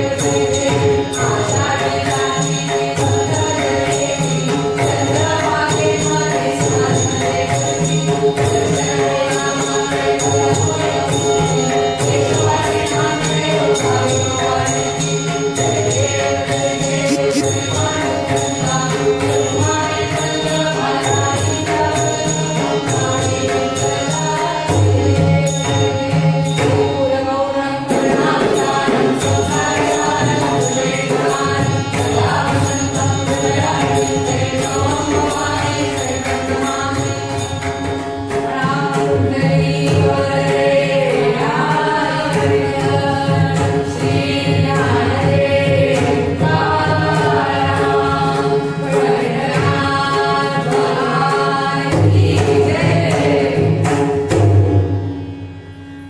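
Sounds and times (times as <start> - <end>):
harmonium chords: 0.0 - 56.0
tabla: 0.0 - 56.0
hand cymbals clinking: 14.0 - 20.2
group singing devotional song: 16.4 - 18.9, 27.0 - 37.0, 38.5 - 53.9.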